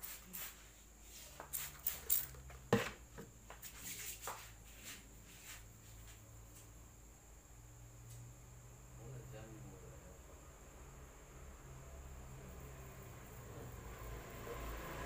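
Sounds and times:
hands rubbing head and face: 0.0s - 2.6s, 3.5s - 6.3s.

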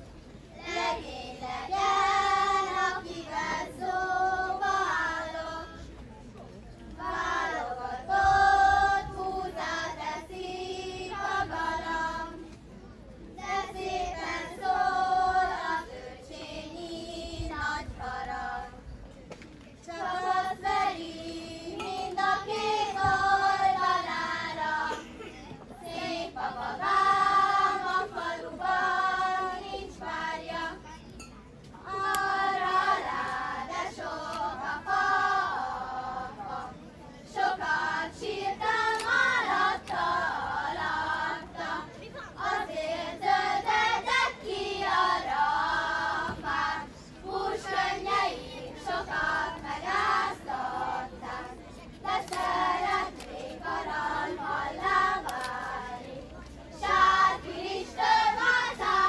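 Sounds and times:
children singing: 19.9s - 30.8s, 56.8s - 59.0s.

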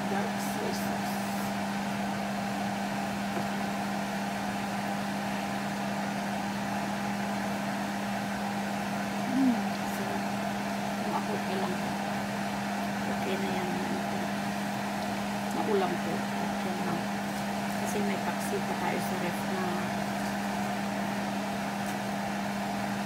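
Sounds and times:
broth boiling in pot: 0.0s - 23.0s
steady mechanical hum: 0.0s - 23.0s
murmur of voice: 9.3s - 10.2s.

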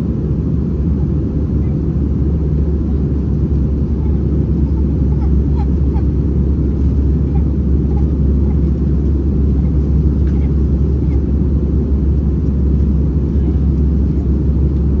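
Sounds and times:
airplane cabin rumble: 0.0s - 15.0s.

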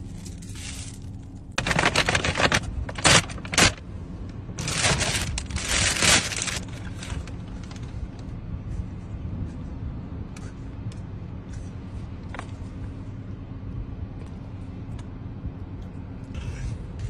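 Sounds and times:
paper and plastic bags rustling: 0.0s - 3.8s, 4.6s - 8.0s
steady low hum: 0.0s - 17.0s.

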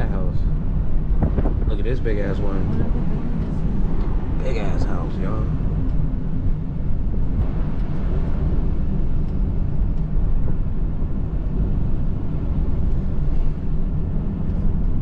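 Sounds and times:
car engine and road drone: 0.0s - 15.0s.

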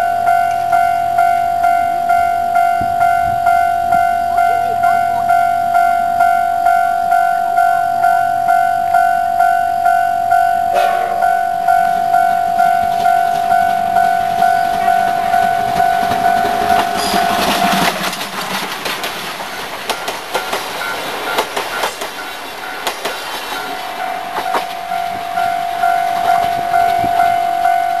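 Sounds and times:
level-crossing alarm ringing: 0.0s - 18.1s, 19.5s - 28.0s
train wheels clattering over rails: 10.7s - 28.0s.

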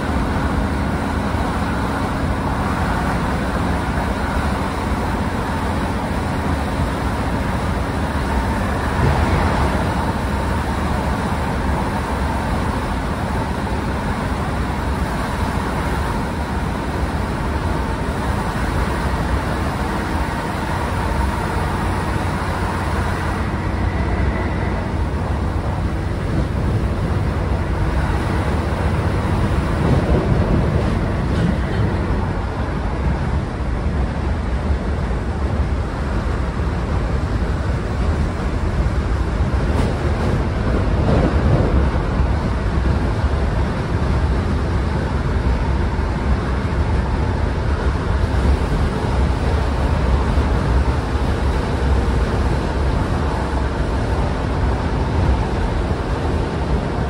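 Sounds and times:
train rumble and drone: 0.0s - 57.0s.

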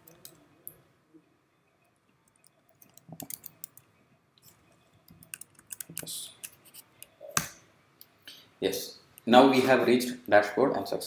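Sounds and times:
computer keyboard keystrokes: 2.8s - 3.8s.

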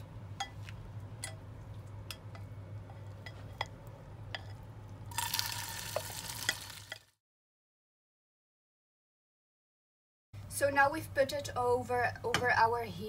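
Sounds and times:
low steady hum: 0.0s - 5.8s
batter sizzling in oil: 5.1s - 7.2s.

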